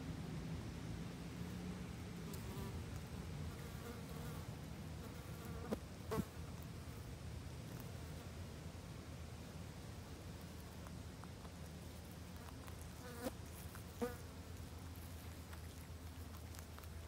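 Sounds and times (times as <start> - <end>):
steady low rumble: 0.0 - 3.6
insect buzzing: 12.4 - 14.4.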